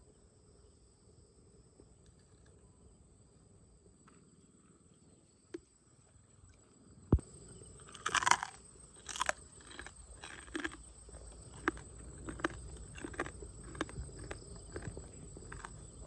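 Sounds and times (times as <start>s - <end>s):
man chewing and crunching: 7.2s - 16.0s
crab shell cracking: 7.9s - 10.8s.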